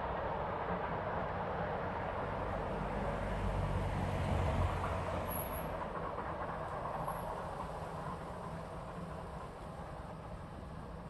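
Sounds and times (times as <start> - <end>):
steam train rumbling: 4.8 - 11.0.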